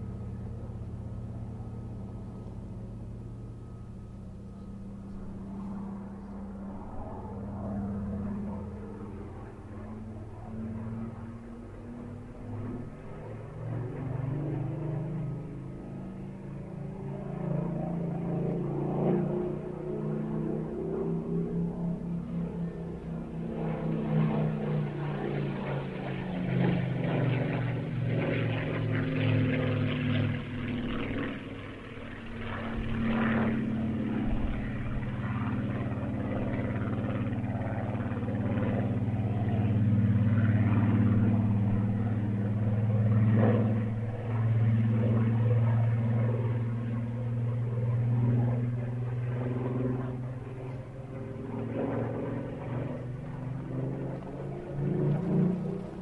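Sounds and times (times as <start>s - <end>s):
propeller plane engine in flight: 0.0s - 56.0s.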